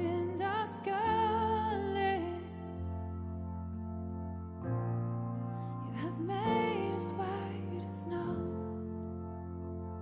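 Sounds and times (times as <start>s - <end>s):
woman singing: 0.0s - 3.0s, 5.9s - 8.9s
worship song on keyboard: 0.0s - 10.0s.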